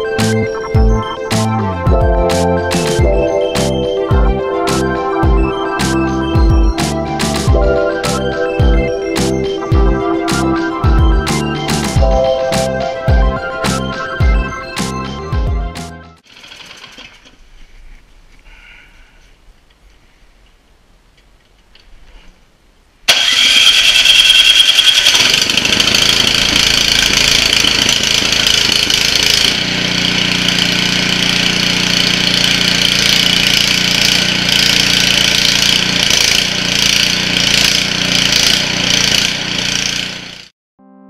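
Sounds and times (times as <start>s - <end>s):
snow blower engine running: 0.0s - 15.4s, 16.2s - 17.2s, 23.1s - 40.5s
electric starter: 16.2s - 17.4s, 23.1s - 40.5s.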